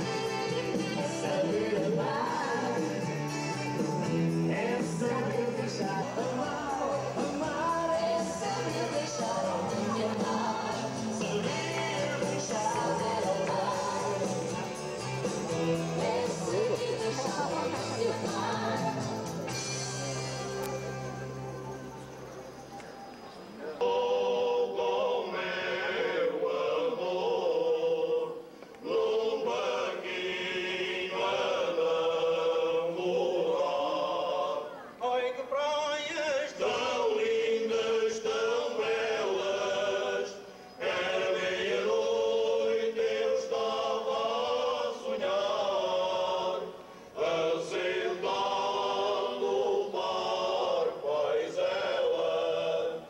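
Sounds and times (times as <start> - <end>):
male choir singing: 0.0 - 19.6, 23.6 - 53.0.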